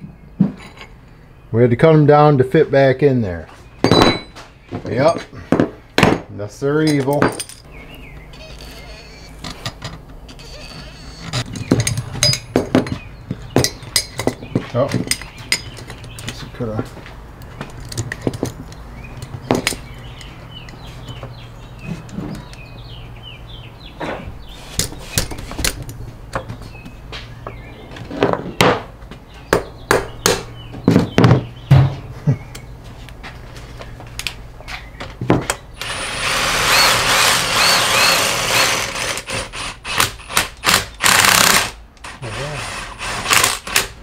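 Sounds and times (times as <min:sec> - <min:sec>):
metal clinks of gear puller: 0:11.4 - 0:12.5
power tool running: 0:35.8 - 0:43.9.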